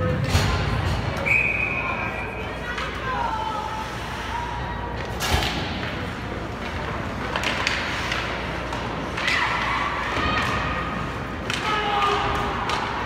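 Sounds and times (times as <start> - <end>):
hockey stick cracking puck: 6.6 - 10.6
distant shouts: 9.2 - 13.0.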